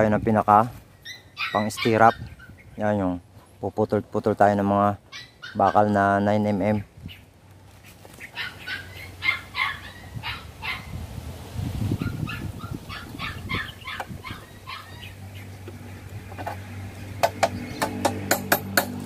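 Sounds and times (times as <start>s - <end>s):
dog yipping and barking: 1.0s - 2.5s, 5.1s - 5.9s, 8.2s - 11.0s, 12.0s - 15.5s.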